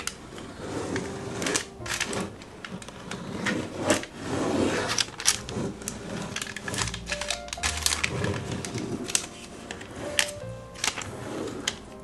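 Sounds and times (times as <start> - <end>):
baking paper rustling: 0.0 - 12.0
spatula scraping batter: 3.0 - 6.7.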